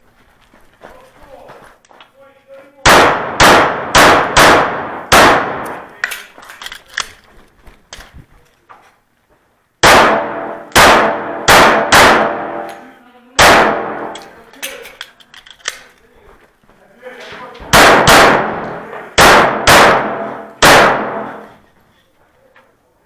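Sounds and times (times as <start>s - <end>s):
pistol shots echoing: 2.8s - 6.2s, 9.8s - 12.8s, 13.4s - 14.4s, 17.7s - 21.6s.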